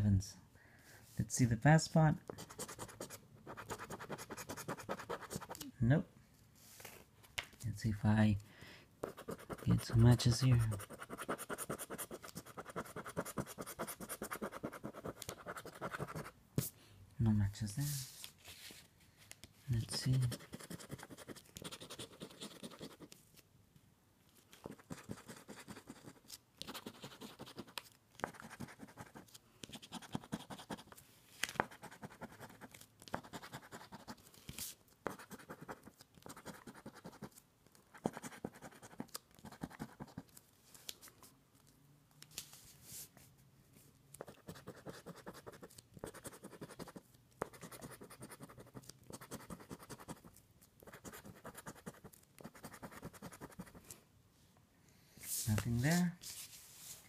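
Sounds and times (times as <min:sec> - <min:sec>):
scratching lottery ticket: 0:02.4 - 0:05.6, 0:09.0 - 0:16.3, 0:19.8 - 0:23.2, 0:24.6 - 0:31.0, 0:31.6 - 0:34.3, 0:35.1 - 0:37.4, 0:38.0 - 0:40.4, 0:44.2 - 0:53.8.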